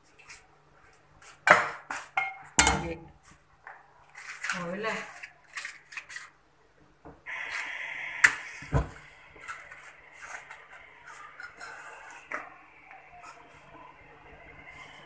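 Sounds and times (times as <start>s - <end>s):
gas hissing: 7.3s - 12.4s
flame hissing: 7.3s - 15.0s.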